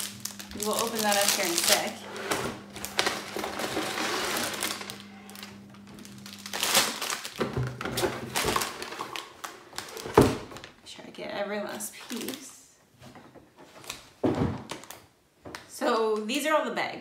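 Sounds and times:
plastic bags crinkling: 0.0s - 10.8s, 11.6s - 12.6s, 13.7s - 15.0s.

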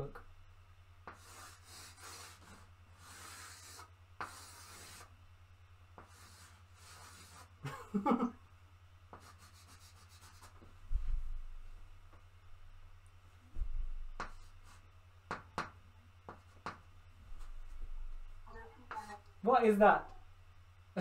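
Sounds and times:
chalk scraping on blackboard: 1.0s - 5.1s, 6.0s - 7.6s, 9.1s - 10.6s, 14.2s - 14.8s.

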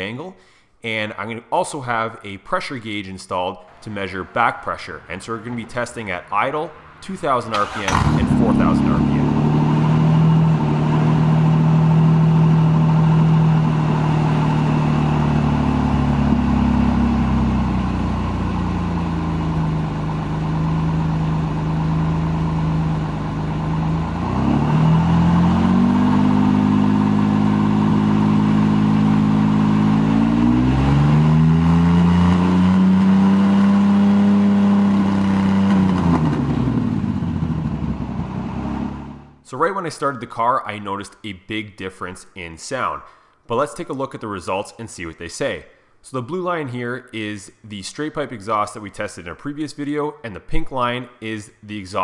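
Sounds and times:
car engine idling and revving: 3.7s - 39.4s.

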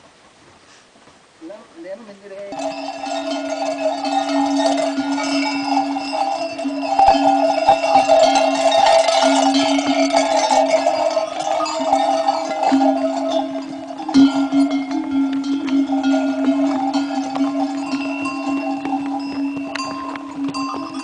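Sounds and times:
animal bells ringing: 2.5s - 21.0s.

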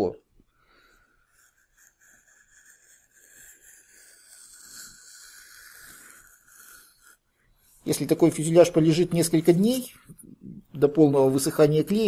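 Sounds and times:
knife scraping foam: 0.9s - 10.2s.

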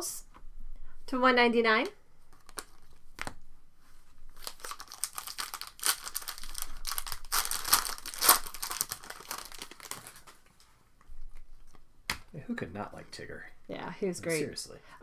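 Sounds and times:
plastic wrapper crinkling: 2.3s - 3.4s, 4.3s - 10.6s.

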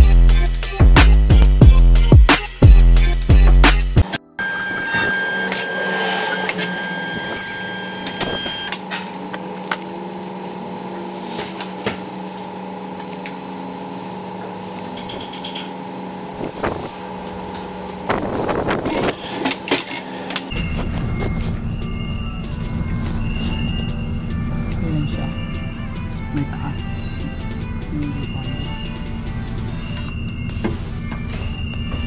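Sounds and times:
electric machine hum: 3.0s - 20.5s.

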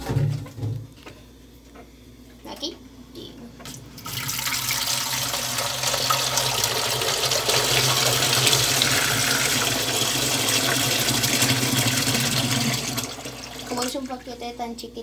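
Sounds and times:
tap water running into metal pot: 4.0s - 14.0s.

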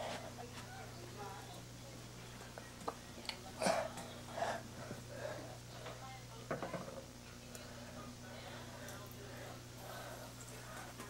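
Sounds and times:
close breathy noises: 3.6s - 5.8s, 7.8s - 11.0s.

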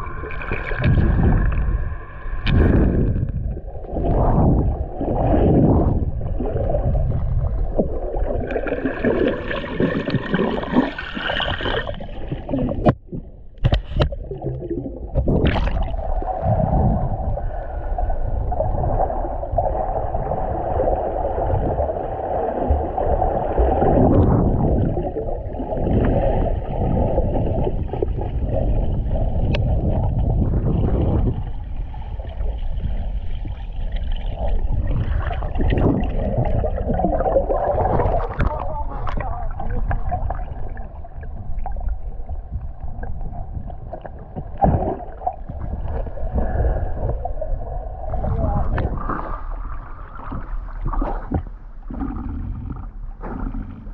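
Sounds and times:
underwater water rumble and gurgling: 0.0s - 53.9s.

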